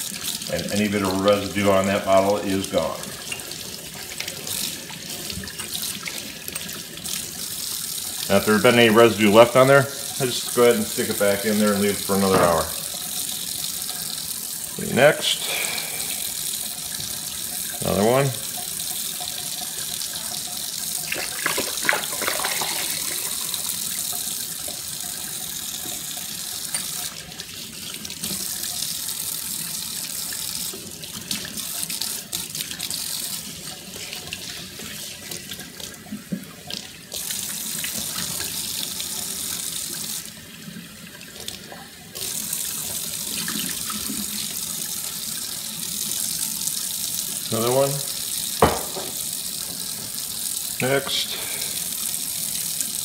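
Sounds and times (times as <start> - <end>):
faucet running into steel sink: 0.0 - 53.0
glass bottle knocks and clatters: 48.6 - 49.2.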